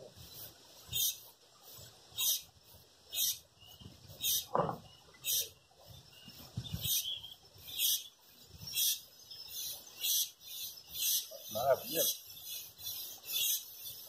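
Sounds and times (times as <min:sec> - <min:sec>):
small animal chirping: 0:03.1 - 0:04.5, 0:06.7 - 0:08.1, 0:08.7 - 0:14.0.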